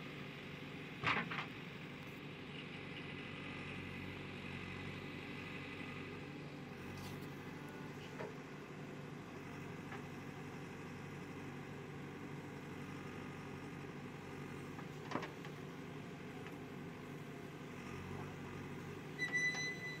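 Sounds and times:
diesel engine running: 0:00.0 - 0:20.0
backhoe digging soil: 0:12.8 - 0:20.0
short high beep: 0:19.2 - 0:20.0.

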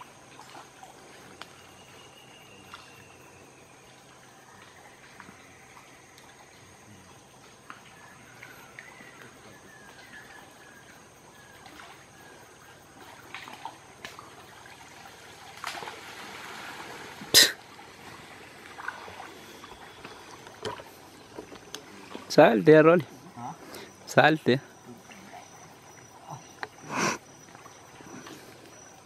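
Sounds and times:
water trickling and splashing: 0:00.0 - 0:29.0.

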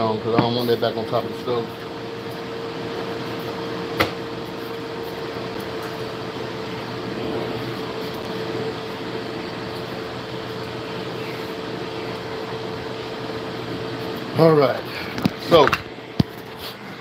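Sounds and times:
appliance fan whirring hum: 0:00.0 - 0:17.0.

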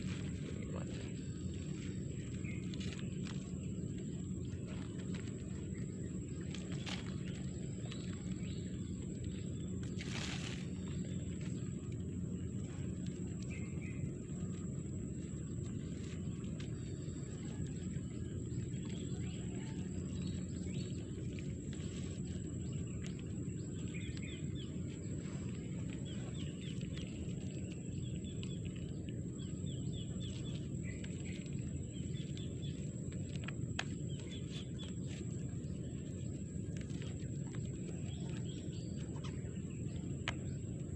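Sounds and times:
steady low rumble: 0:00.0 - 0:40.9
bird chirping: 0:13.4 - 0:14.7, 0:16.8 - 0:40.9.

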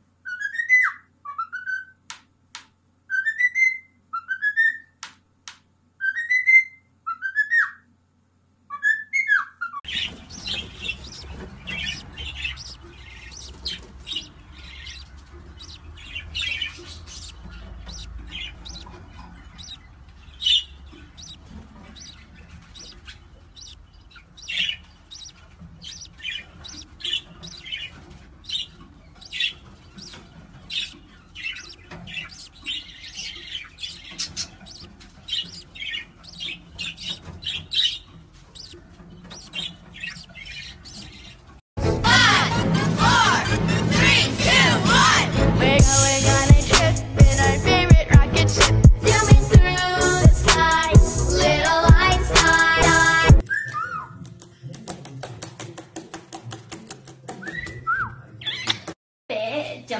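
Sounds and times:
budgerigars chirping: 0:00.3 - 0:02.0, 0:06.0 - 0:07.8, 0:08.7 - 0:41.6, 0:45.8 - 0:54.1.

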